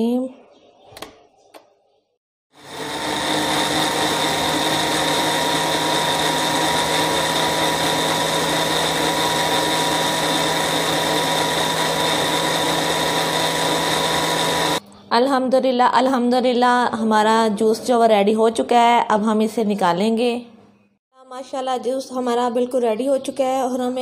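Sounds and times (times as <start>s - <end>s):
blender motor running: 2.5s - 14.8s.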